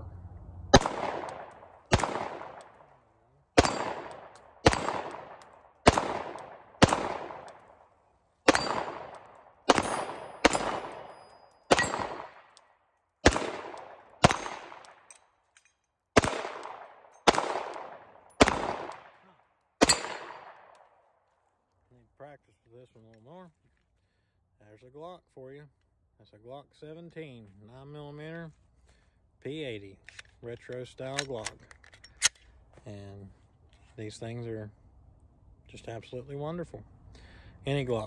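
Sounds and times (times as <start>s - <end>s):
pistol shots echoing: 0.8s - 2.9s, 3.5s - 12.6s, 13.2s - 15.2s, 16.2s - 19.2s, 19.8s - 20.8s.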